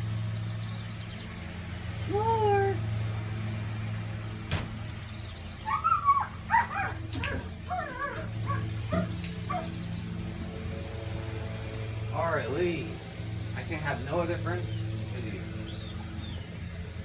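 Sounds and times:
steady low hum: 0.0s - 17.0s
pet whining and yelping: 5.6s - 9.7s.

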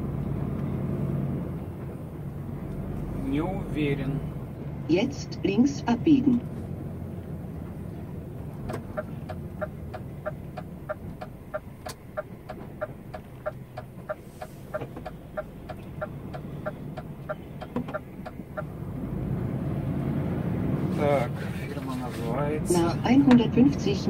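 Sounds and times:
diesel engine running: 0.0s - 24.0s
turn signal ticking: 4.4s - 19.0s, 23.0s - 24.0s.

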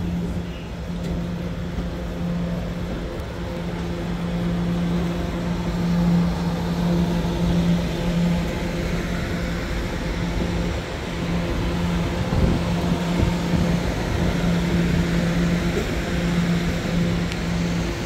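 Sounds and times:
dense rumble: 0.0s - 18.0s
steady low hum: 0.0s - 18.0s
subway car running: 0.0s - 18.0s.

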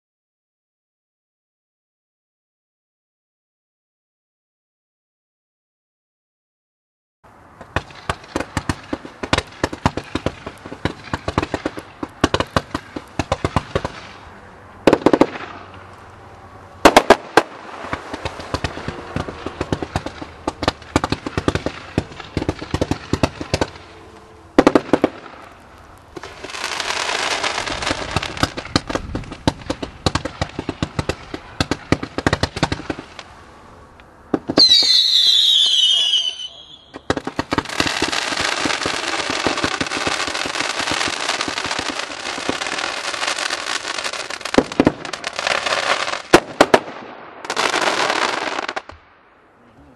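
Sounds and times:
fireworks pops and bangs: 7.5s - 16.1s, 16.8s - 24.0s, 24.6s - 33.4s, 34.3s - 49.2s
fireworks hissing: 16.8s - 33.9s, 34.5s - 46.4s
whistles falling in pitch: 34.6s - 37.0s.

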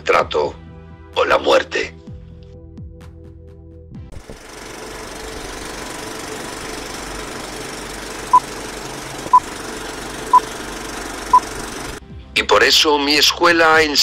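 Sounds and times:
film projector rattling hiss: 4.1s - 12.0s.

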